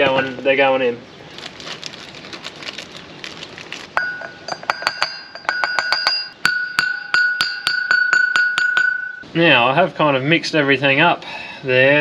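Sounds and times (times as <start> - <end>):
hammer tapping metal: 4.0 - 9.2.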